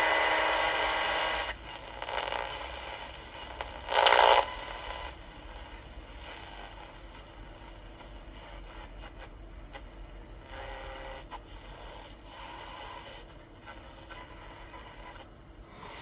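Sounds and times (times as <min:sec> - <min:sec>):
radio static hiss: 0:00.0 - 0:16.0
loud burst of noise: 0:15.7 - 0:16.0.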